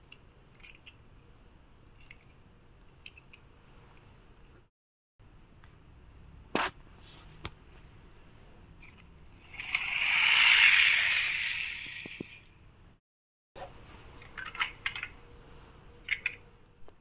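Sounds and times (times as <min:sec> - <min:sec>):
toy car wheels rattling: 0:08.9 - 0:12.5.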